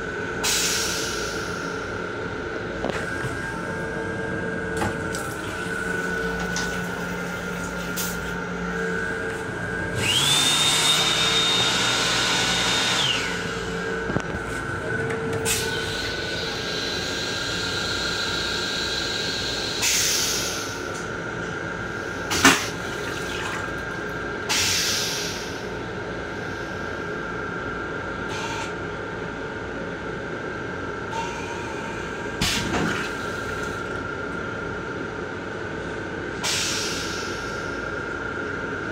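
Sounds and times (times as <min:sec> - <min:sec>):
toilet flushing: 0:22.3 - 0:24.0.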